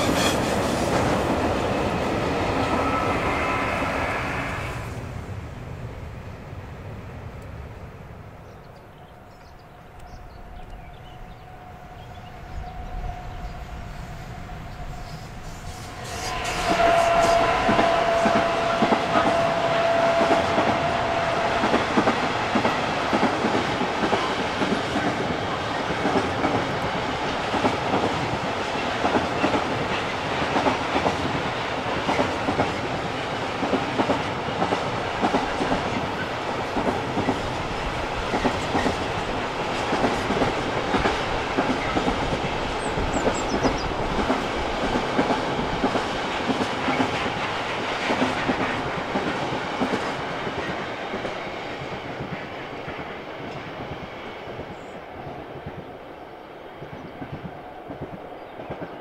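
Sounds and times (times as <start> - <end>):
train wagons rumbling: 0.0 - 8.4, 9.2 - 56.0.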